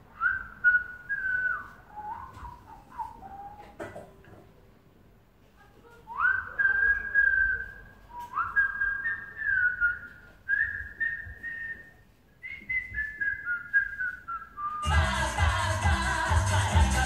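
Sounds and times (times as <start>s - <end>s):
person whistling a tune: 6.1s - 15.0s.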